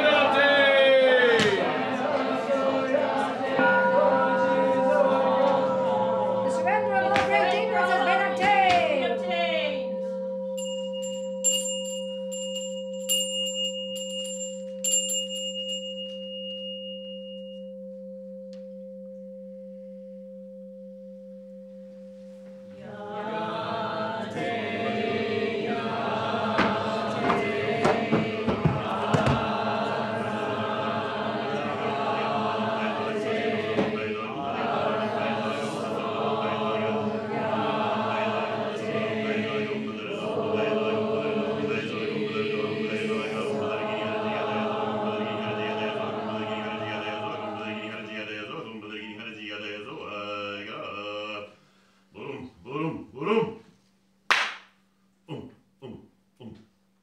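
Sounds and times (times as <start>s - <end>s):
congregation chanting: 0.0s - 10.5s, 22.7s - 51.5s, 52.2s - 53.6s
bowl bell ringing: 3.2s - 23.2s.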